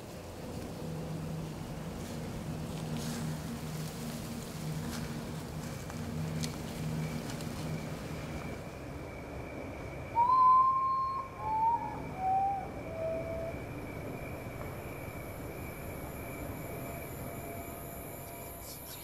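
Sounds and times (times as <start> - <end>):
high insect-like drone: 0.1 - 19.0
bird hooting: 10.1 - 13.9.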